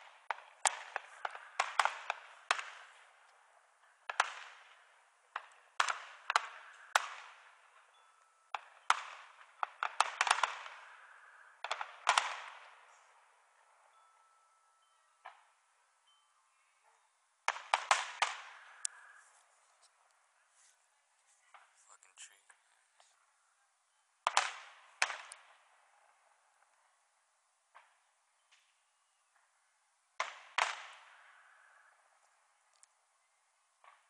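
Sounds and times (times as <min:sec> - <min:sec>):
fireworks exploding with sharp bangs: 0:00.0 - 0:13.4, 0:17.4 - 0:19.5, 0:24.2 - 0:25.9, 0:30.2 - 0:31.5.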